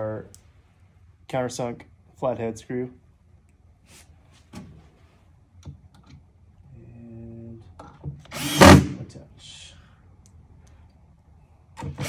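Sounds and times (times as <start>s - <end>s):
cordless drill humming: 8.3s - 9.0s.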